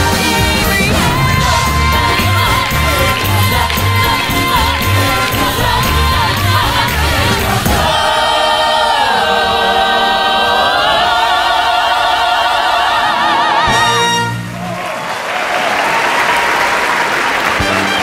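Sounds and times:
show music with driving beat: 0.0s - 8.7s.

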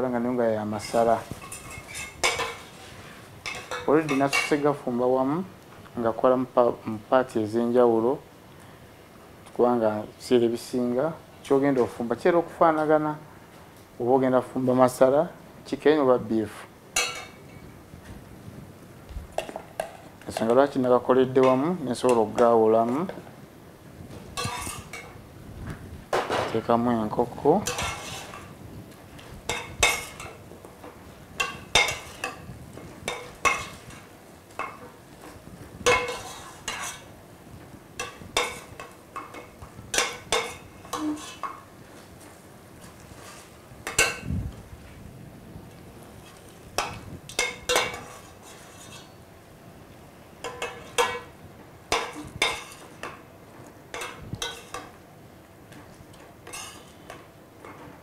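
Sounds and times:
metal ladle scraping a pot: 24.4s - 25.0s, 27.6s - 28.5s, 35.9s - 37.1s, 40.0s - 41.5s, 47.4s - 49.2s, 56.5s - 56.9s.

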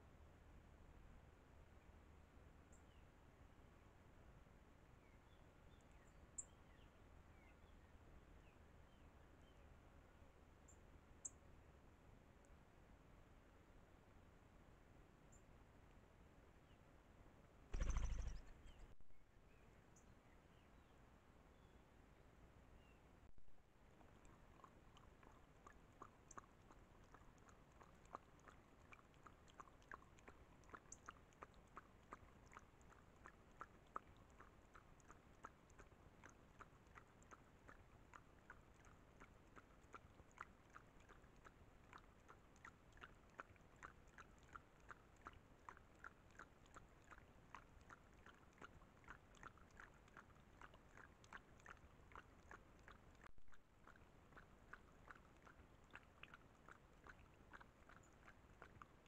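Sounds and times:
animal lapping water: 23.6s - 59.0s.

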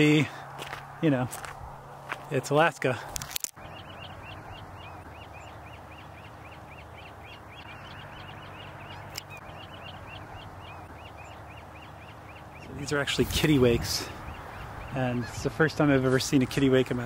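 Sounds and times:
seabirds calling: 0.0s - 17.0s.

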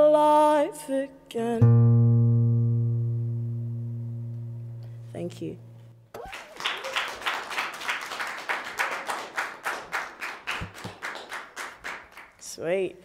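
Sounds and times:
hands clapping applause: 6.1s - 12.5s.

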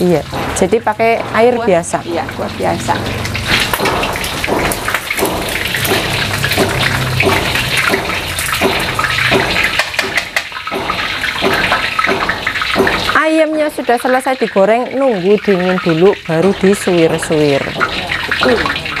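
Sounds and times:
chicken sizzling in hot oil: 0.0s - 19.0s.

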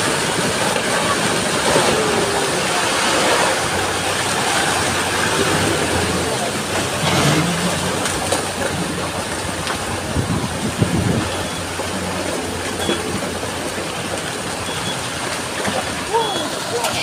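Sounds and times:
soil and rocks rumbling down: 0.0s - 17.0s.

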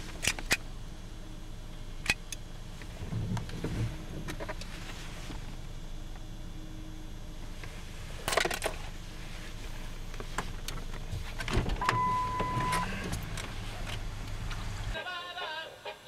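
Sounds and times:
low rumble inside car: 0.0s - 15.0s
electronic beep: 11.8s - 12.9s.

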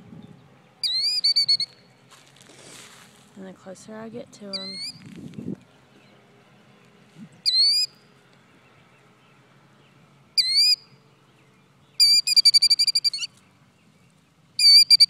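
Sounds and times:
rapid bird trilling: 0.8s - 1.9s, 4.5s - 5.1s, 7.4s - 8.0s, 10.4s - 11.0s, 12.0s - 13.4s, 14.6s - 15.0s
shrill bird calls: 0.8s - 1.9s, 4.5s - 5.0s, 7.4s - 8.0s, 10.4s - 11.0s, 11.9s - 13.4s, 14.6s - 15.0s.

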